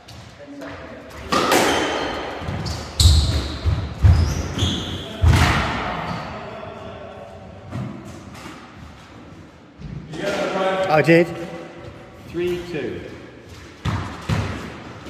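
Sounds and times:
squash ball hits echoing: 1.2 - 6.4, 13.5 - 15.0.

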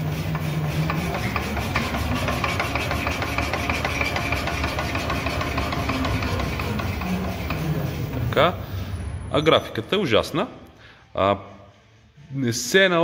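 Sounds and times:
shock absorber knocking: 0.0 - 8.6
test bench running hum: 0.0 - 9.0.

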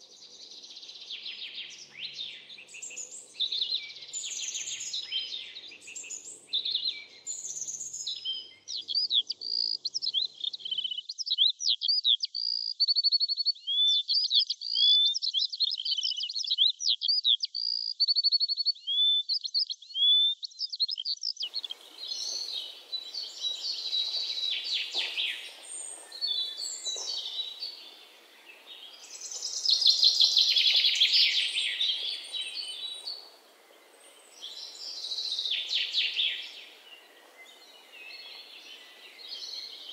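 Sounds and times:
small songbirds singing: 0.0 - 39.9.

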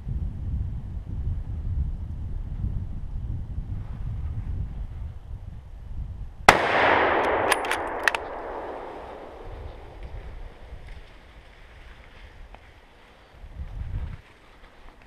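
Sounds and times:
rifle shot echoing: 6.5 - 10.9.

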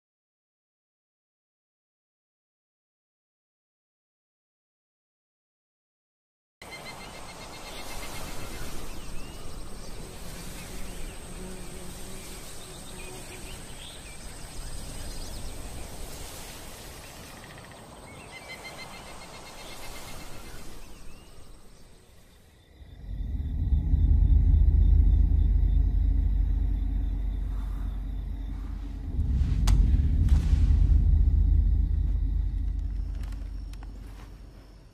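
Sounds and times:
insects trilling: 6.7 - 29.5, 30.9 - 34.9
bird chirps: 17.1 - 30.0
deep loud rumble: 22.7 - 34.9.

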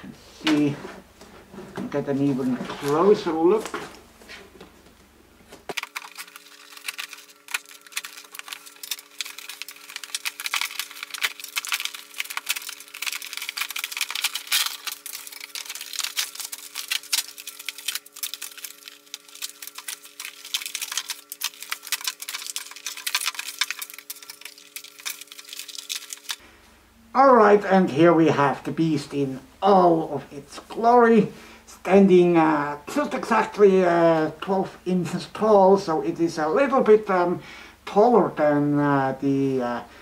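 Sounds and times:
faint steady hum: 0.0 - 40.0
packaging crinkling and rustling: 5.7 - 26.4.

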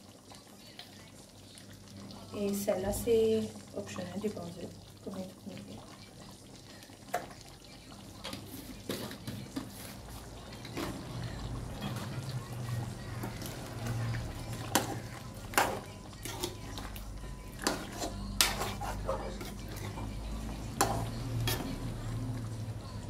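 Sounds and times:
wooden spatula scraping a wok: 8.3 - 16.8, 17.6 - 21.9.

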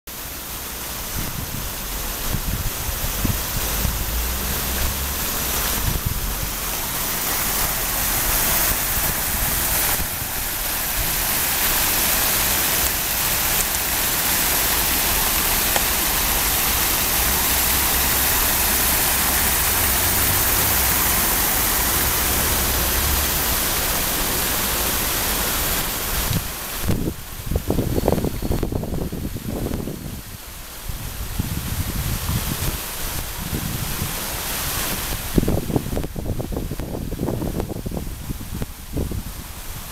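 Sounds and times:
fountain jets splashing: 0.1 - 39.9.

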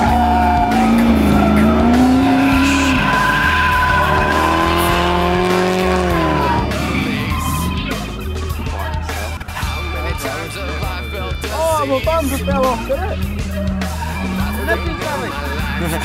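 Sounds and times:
car engine at high revs: 0.0 - 8.7, 13.0 - 16.0
tyres squealing: 0.0 - 9.4, 10.2 - 16.0.

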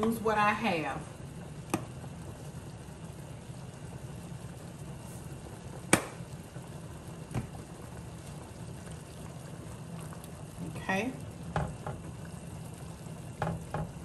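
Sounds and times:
steady low hum: 0.0 - 14.0
knock on counter or pan: 11.5 - 12.0, 13.4 - 14.0.

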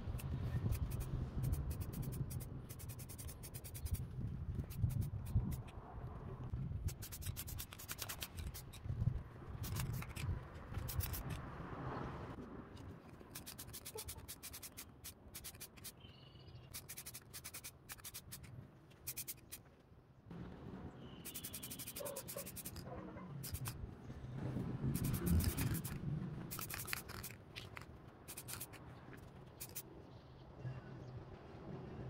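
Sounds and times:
light sharp clicks and scraping: 25.0 - 29.9.

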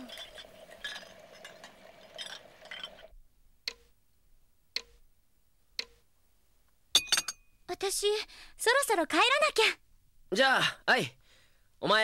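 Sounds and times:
wall clock ticking: 3.6 - 4.0, 4.7 - 5.0, 5.7 - 6.1
faint kitchen clinks: 7.0 - 7.5.

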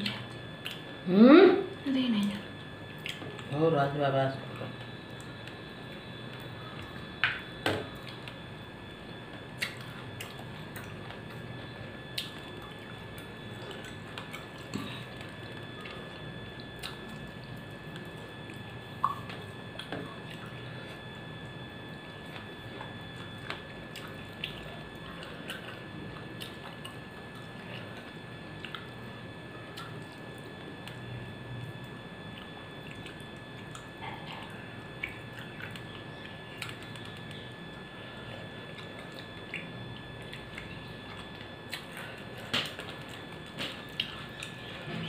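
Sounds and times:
steady low hum: 0.0 - 45.0
wet clicks and smacks: 0.6 - 0.9, 2.9 - 3.5, 9.4 - 11.4, 12.1 - 16.0, 16.8 - 20.5, 35.0 - 37.4, 38.8 - 44.6
soft chewing: 2.4 - 3.5, 4.6 - 45.0.

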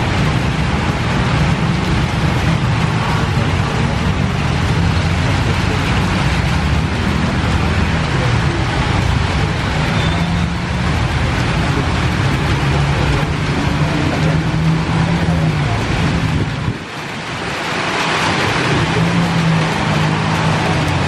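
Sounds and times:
low rumble of road traffic: 0.0 - 21.0
faint voices: 1.4 - 21.0.

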